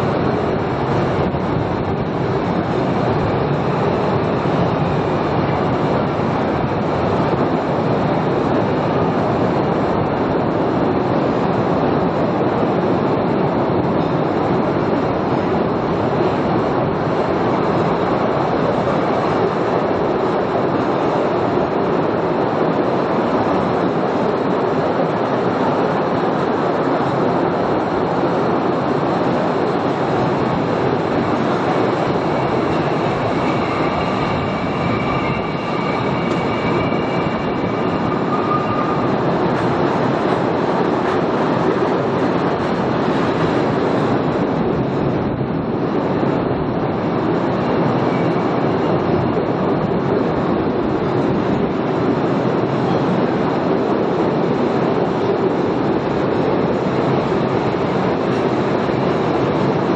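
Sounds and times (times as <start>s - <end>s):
train wheels rumbling on track: 0.0s - 59.9s
faint high squeal: 32.1s - 39.2s.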